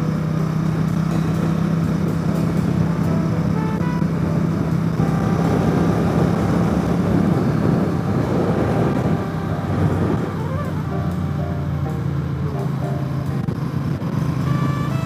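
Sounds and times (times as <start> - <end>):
motorcycle engine running: 0.0 - 15.0
wind rushing over microphone: 1.7 - 11.2, 13.2 - 15.0.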